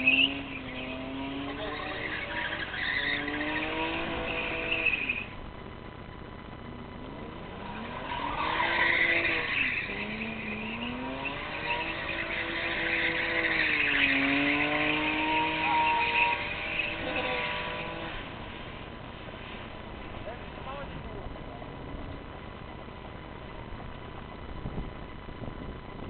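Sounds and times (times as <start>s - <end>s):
tyres squealing on tarmac: 0.0s - 5.4s, 7.5s - 18.8s
car engine revving: 0.0s - 25.3s.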